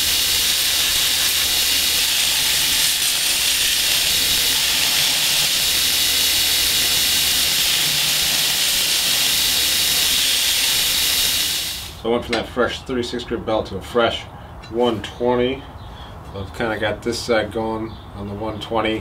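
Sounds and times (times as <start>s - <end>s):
belt grinder grinding steel: 0.0s - 12.0s.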